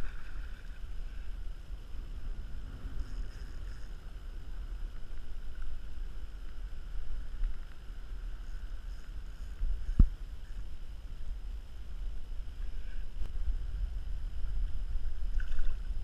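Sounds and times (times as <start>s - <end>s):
small waves lapping against kayak: 0.0s - 6.5s
wind buffeting microphone: 0.0s - 16.0s.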